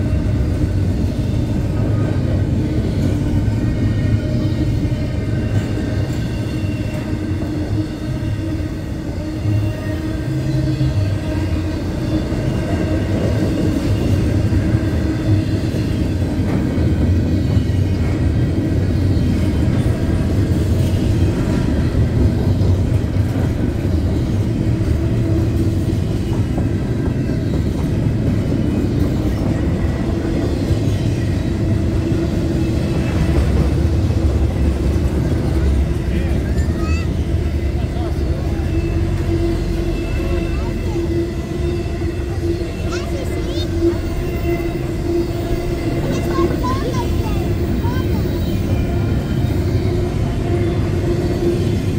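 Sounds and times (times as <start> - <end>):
freight train rolling past: 0.0 - 51.9.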